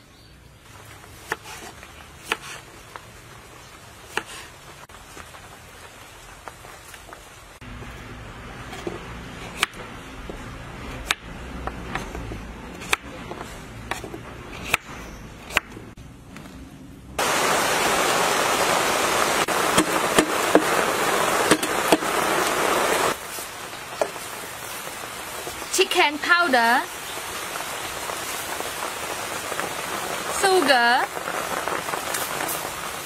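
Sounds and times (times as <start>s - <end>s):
knife chopping on wooden board: 11.0s - 15.9s
loud steady hiss: 17.2s - 33.0s.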